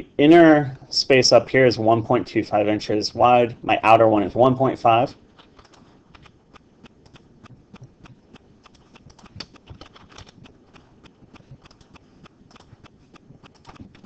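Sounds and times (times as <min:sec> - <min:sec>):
keyboard and mouse clicking: 0:05.3 - 0:14.0.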